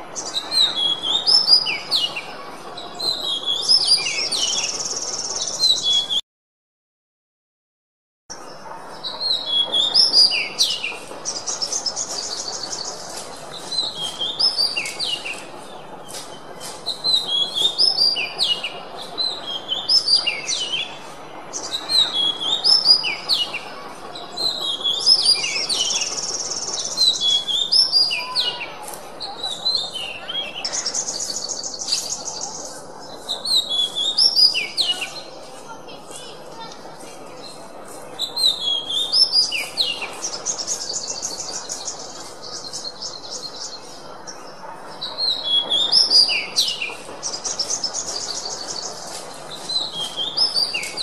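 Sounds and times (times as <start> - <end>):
low background noise: 8.3 - 51.0
bird singing whistled song: 33.4 - 35.2, 45.1 - 51.0.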